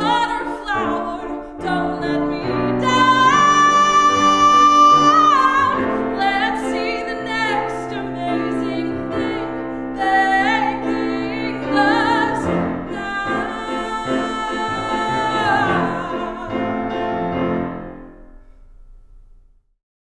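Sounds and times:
woman singing: 0:00.0 - 0:17.4
grand piano accompaniment: 0:00.0 - 0:19.6.

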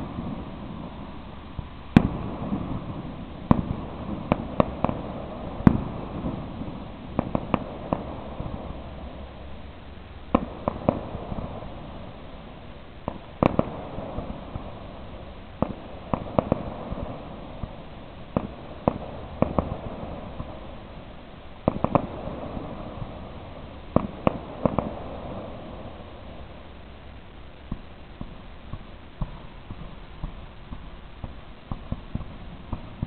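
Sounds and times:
firework shells bursting: 0:27.6 - 0:33.0.

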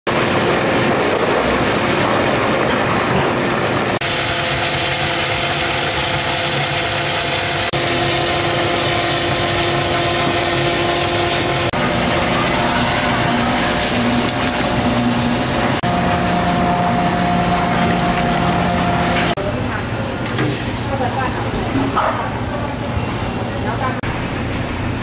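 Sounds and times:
machine motor hum: 0:00.1 - 0:19.4
pouring liquid: 0:17.2 - 0:19.4.

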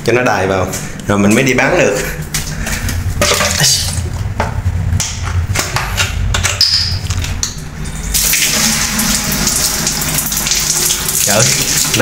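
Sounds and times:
tap water running: 0:07.2 - 0:12.0.

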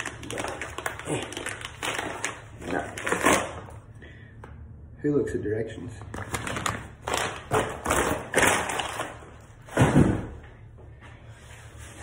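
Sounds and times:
packing paper rustling: 0:00.0 - 0:03.8, 0:06.1 - 0:09.6.

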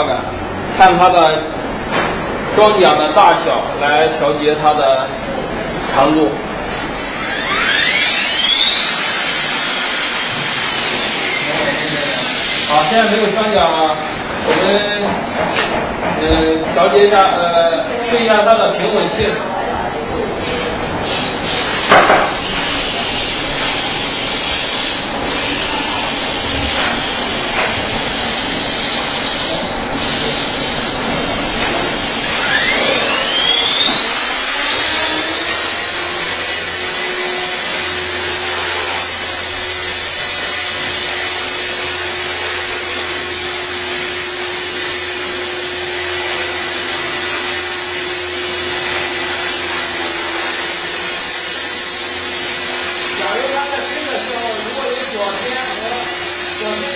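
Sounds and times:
rc helicopter rotor whine: 0:06.6 - 0:13.6, 0:22.3 - 0:56.9
loud knock: 0:21.9 - 0:22.4.

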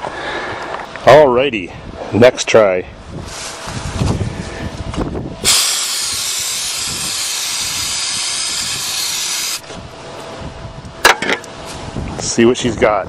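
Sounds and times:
aerosol spray hiss: 0:05.4 - 0:09.6.

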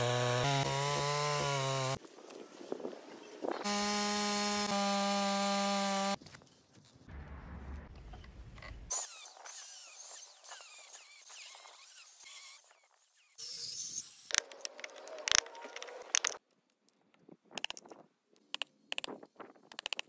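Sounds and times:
sawing and scraping wood: 0:08.9 - 0:16.4.

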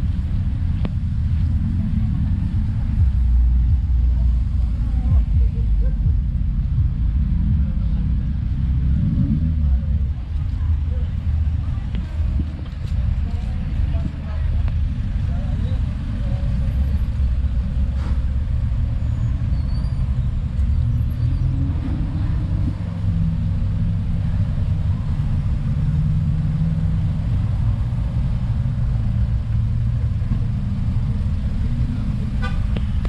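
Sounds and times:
vehicle engine and road noise: 0:00.0 - 0:33.0.

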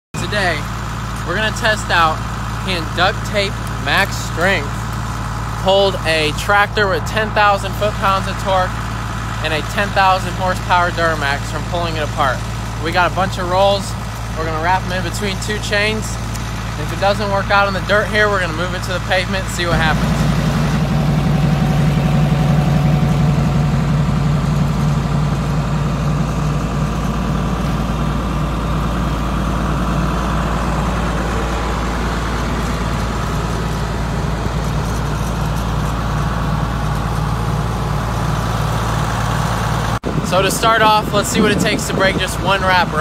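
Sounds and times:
diesel engine idling: 0:00.2 - 0:43.0.

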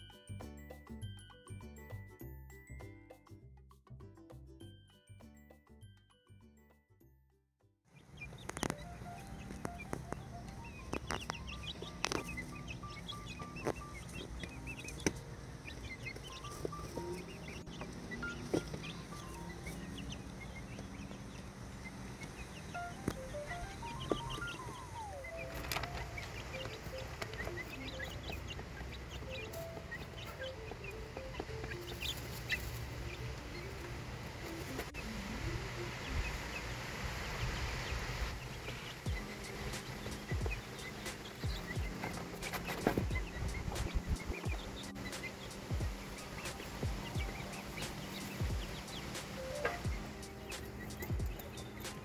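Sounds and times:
music track: 0:00.0 - 0:07.2, 0:08.2 - 0:36.9, 0:38.4 - 0:52.0
chicks peeping and chirping: 0:07.9 - 0:52.0
knocks and scratches on straw: 0:38.7 - 0:52.0.

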